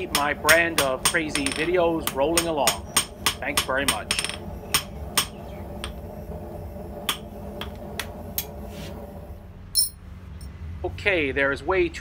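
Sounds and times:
hammer striking hot steel on anvil: 0.0s - 6.0s, 7.1s - 8.5s
steady low hum: 0.0s - 12.0s.

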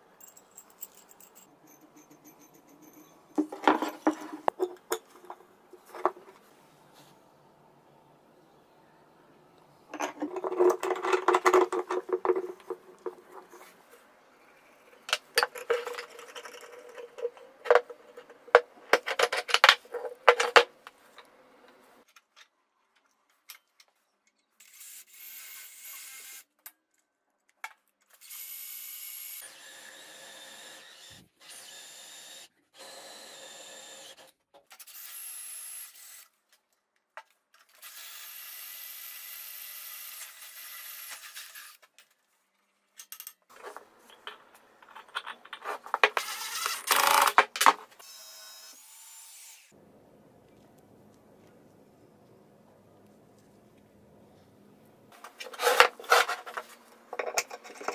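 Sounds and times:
metal rod clattering on plywood: 2.0s - 6.4s, 9.9s - 13.7s, 15.1s - 20.8s, 43.1s - 46.3s, 55.2s - 57.9s.

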